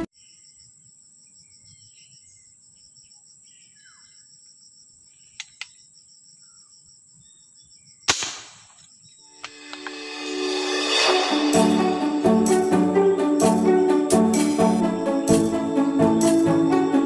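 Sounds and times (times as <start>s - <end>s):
faint bird chirps: 0.1s - 8.1s
air rifle shot: 8.1s - 8.7s.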